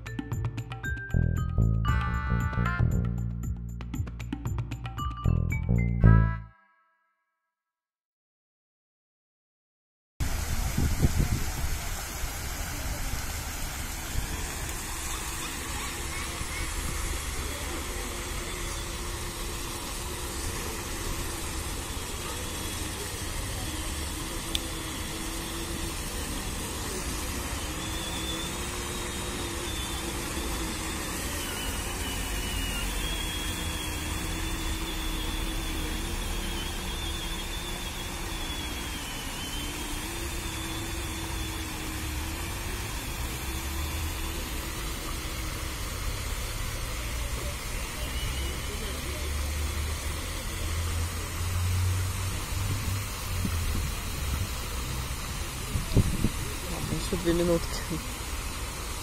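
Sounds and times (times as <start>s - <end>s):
fountain water splashing: 10.2s - 36.5s, 41.7s - 59.0s
faint wavering whine: 10.3s - 58.9s.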